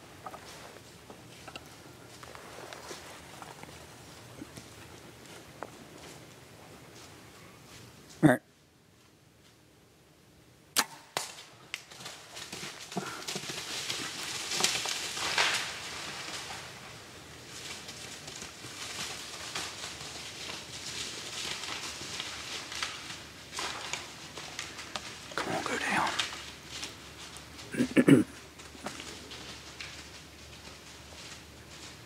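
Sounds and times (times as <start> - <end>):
bow string snap: 10.8 - 11.4
crack: 10.8 - 16.9, 17.5 - 27.7
deer crashing through dry leaves: 11.0 - 27.8, 28.4 - 32.0.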